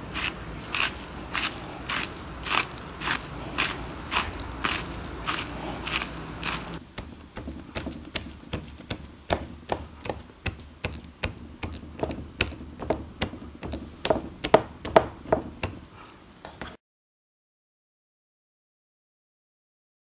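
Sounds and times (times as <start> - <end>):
spice shaker rattling: 0.0 - 6.8.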